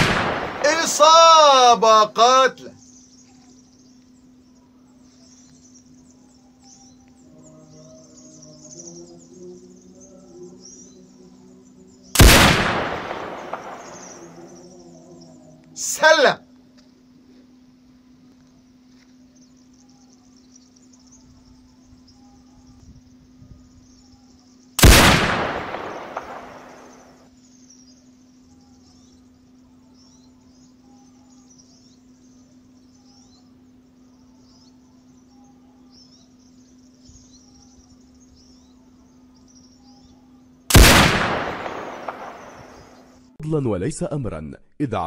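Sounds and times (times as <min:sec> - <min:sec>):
rifle shots: 0:00.0 - 0:01.3, 0:12.2 - 0:14.5, 0:24.8 - 0:27.1, 0:40.7 - 0:43.0
high faint chirping: 0:00.0 - 0:16.6, 0:17.7 - 0:43.2
low steady hum: 0:00.0 - 0:43.4.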